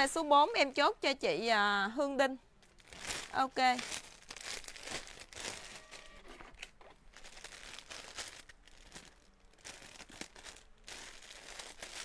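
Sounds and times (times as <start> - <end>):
plastic bags crinkling: 2.6 - 12.0.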